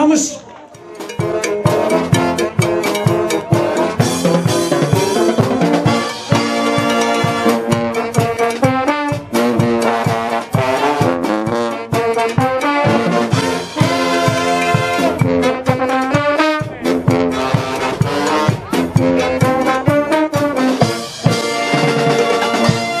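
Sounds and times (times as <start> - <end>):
trombones and trumpets playing: 0.2 - 23.0
drum beat: 0.6 - 23.0.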